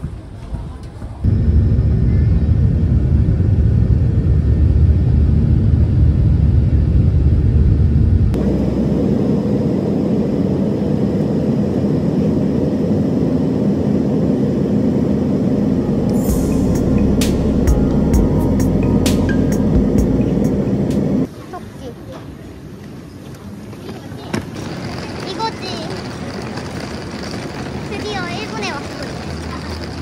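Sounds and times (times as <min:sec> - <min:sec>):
airplane cabin hum: 0:00.0 - 0:21.3
jet engines rumbling: 0:00.0 - 0:21.4, 0:24.4 - 0:30.0.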